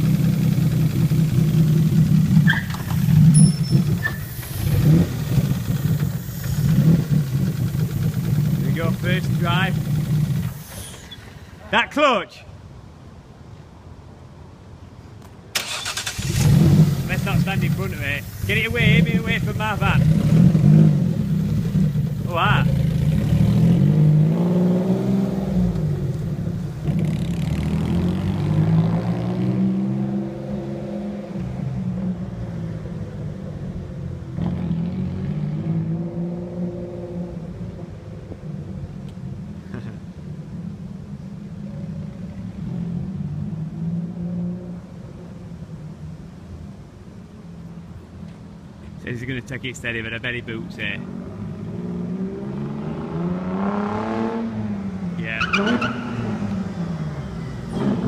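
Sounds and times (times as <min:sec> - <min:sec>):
van engine revving: 0:00.0 - 0:11.6, 0:15.6 - 0:31.9, 0:49.1 - 0:58.0.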